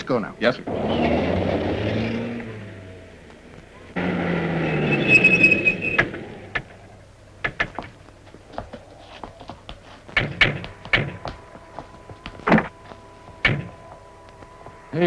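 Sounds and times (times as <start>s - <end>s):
car engine pulling away: 0.5s - 7.0s
tyre squeal: 0.7s - 2.9s, 3.7s - 7.0s.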